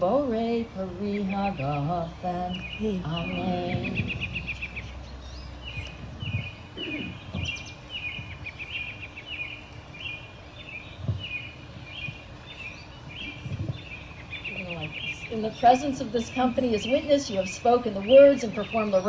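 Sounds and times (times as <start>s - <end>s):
outdoor background noise: 0.0s - 19.0s
bird chirping: 1.0s - 19.0s
low thumps: 2.7s - 8.4s.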